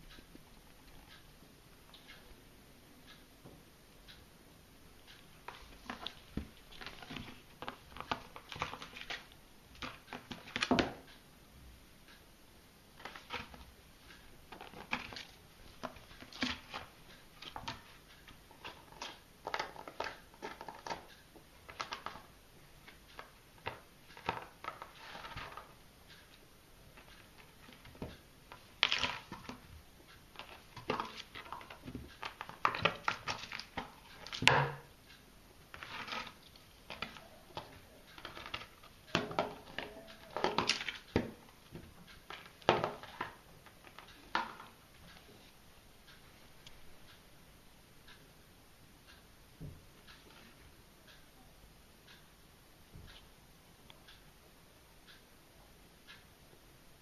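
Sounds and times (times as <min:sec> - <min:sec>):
plastic dustpan tapping and scraping: 0:05.4 - 0:11.1, 0:13.0 - 0:13.7, 0:14.5 - 0:22.3, 0:22.9 - 0:25.8, 0:27.0 - 0:34.9, 0:35.7 - 0:44.8.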